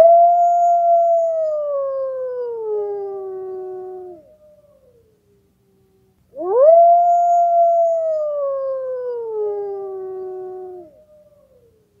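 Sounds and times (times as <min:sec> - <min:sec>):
wolf howling: 0:06.4 - 0:11.7.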